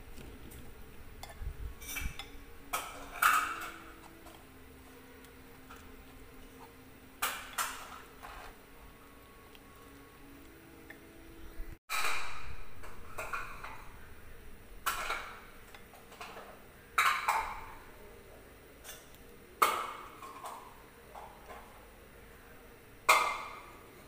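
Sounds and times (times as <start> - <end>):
spoon clinking against bowl: 1.2 - 4.5.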